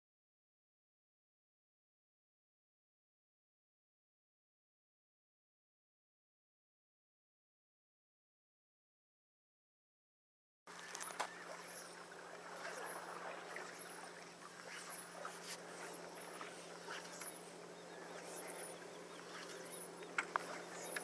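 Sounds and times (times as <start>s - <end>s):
birds calling: 10.7s - 21.0s
steady low hum: 10.7s - 21.0s
high bird chirp: 10.8s - 21.0s.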